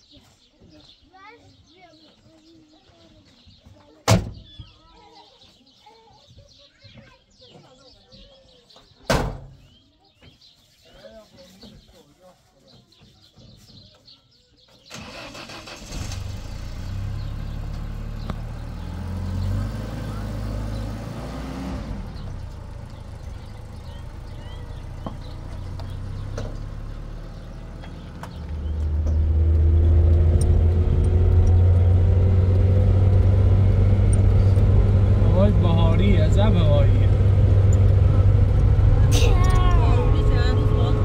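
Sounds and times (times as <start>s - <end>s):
vehicle engine running: 15.0s - 41.0s.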